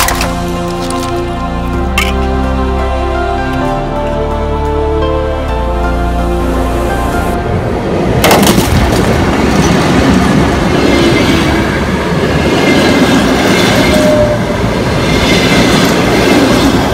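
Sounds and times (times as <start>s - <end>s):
train wheels rumbling on rails: 7.4s - 16.9s.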